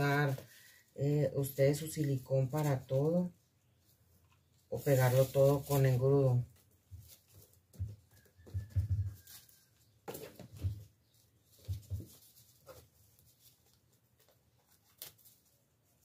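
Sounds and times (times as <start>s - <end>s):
crepe paper rustling: 4.0s - 16.0s.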